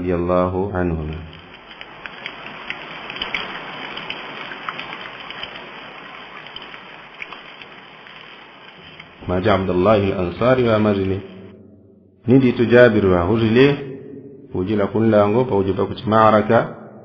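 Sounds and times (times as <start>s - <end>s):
water rushing over waterfall: 1.1s - 11.4s.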